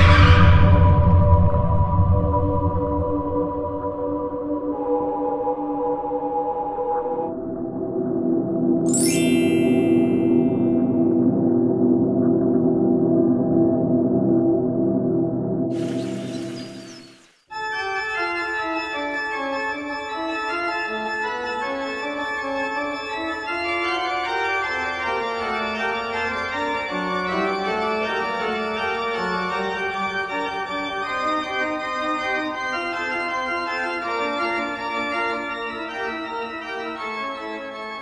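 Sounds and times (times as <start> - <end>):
organ music: 8.9 - 11.0, 15.8 - 38.0.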